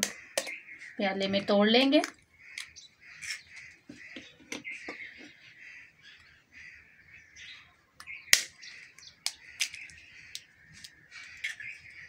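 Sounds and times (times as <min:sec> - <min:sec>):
birds chirping: 0:00.0 - 0:12.0
egg cracking: 0:08.0 - 0:12.0.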